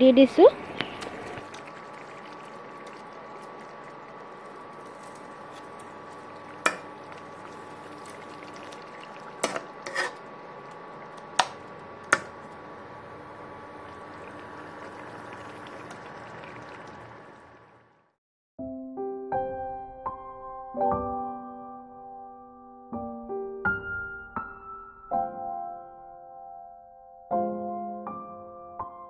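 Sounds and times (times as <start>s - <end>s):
curry simmering with hiss: 0.8s - 11.1s, 12.4s - 17.8s.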